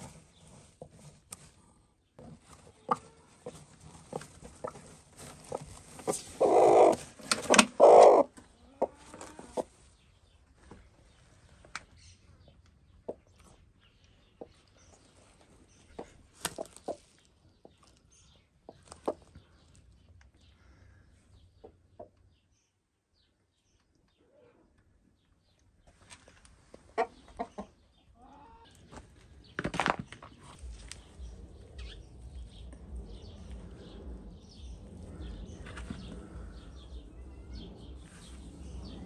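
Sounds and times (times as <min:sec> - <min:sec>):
hen giving harsh calls: 0:06.1 - 0:09.6.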